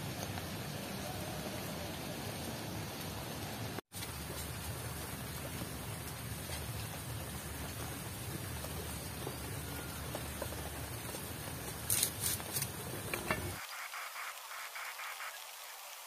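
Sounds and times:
coconut frying in oil: 0:03.7 - 0:16.0
faint crackles: 0:03.9 - 0:16.0.

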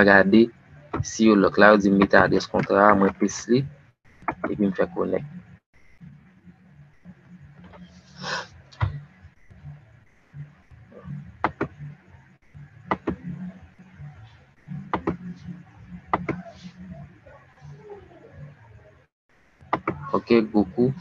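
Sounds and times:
computer mouse clicks: 0:14.9 - 0:15.3.

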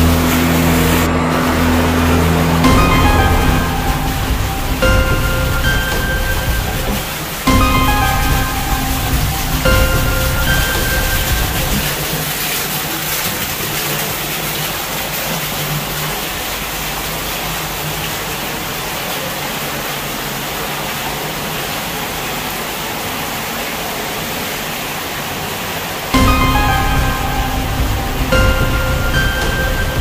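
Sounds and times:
water pouring and splashing: 0:00.0 - 0:30.0
background music: 0:01.7 - 0:12.4, 0:26.2 - 0:30.0.

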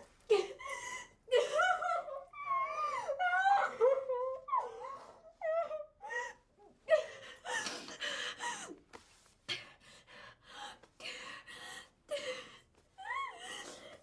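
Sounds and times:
girl crying and sobbing: 0:00.3 - 0:08.8, 0:12.1 - 0:14.0.

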